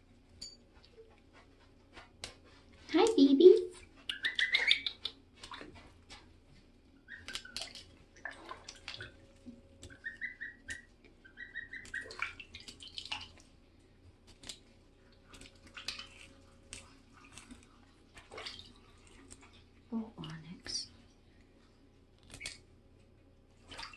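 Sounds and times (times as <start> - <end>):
bathwater splashing: 3.8 - 6.3, 7.1 - 20.6, 23.5 - 23.9
goslings peeping: 4.1 - 5.2, 9.8 - 12.7.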